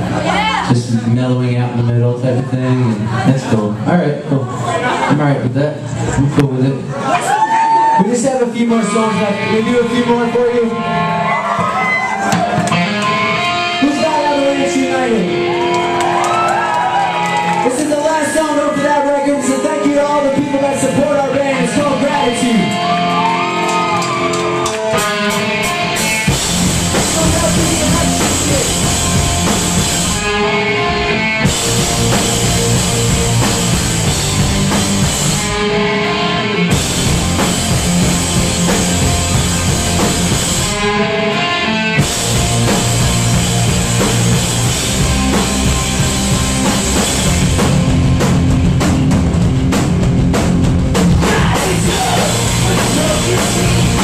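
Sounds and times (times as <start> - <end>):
punk band playing live: 0.0 - 54.0.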